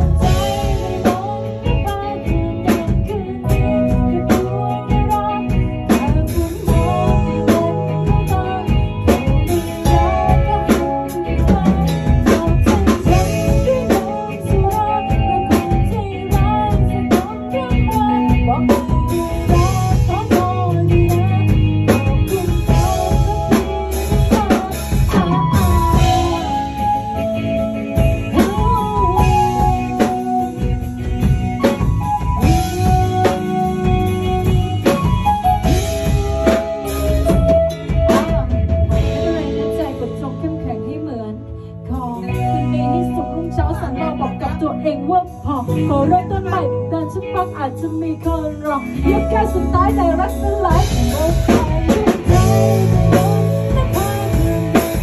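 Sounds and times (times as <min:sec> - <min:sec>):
band playing guitar and drums: 0:00.0 - 0:55.0
woman singing: 0:00.0 - 0:55.0.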